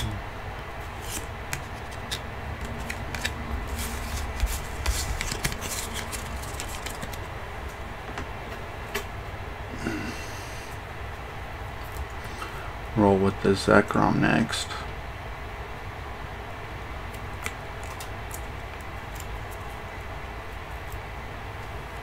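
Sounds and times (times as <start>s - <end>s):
steady low hum: 0.0s - 22.0s
cards being handled: 0.8s - 7.3s, 17.1s - 19.8s.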